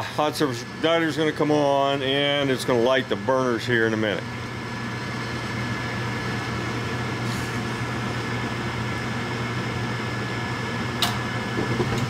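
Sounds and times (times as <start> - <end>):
furnace motor humming with whine: 0.0 - 12.0
gas valve click: 11.0 - 12.0.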